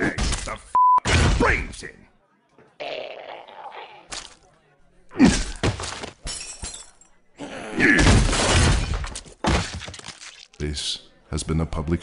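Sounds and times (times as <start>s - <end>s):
breaking and shattering: 5.4s - 7.1s, 7.9s - 10.6s
heavy blows and smashes: 7.9s - 10.1s.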